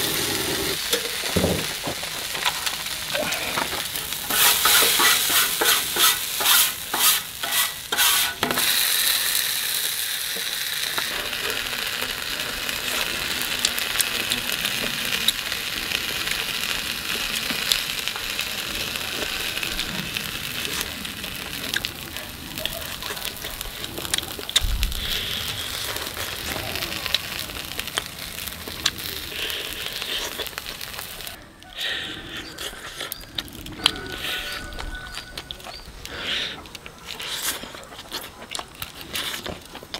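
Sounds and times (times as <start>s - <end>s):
food sizzling in oil: 0.0s - 31.4s
metal spatula scraping griddle: 4.2s - 8.9s.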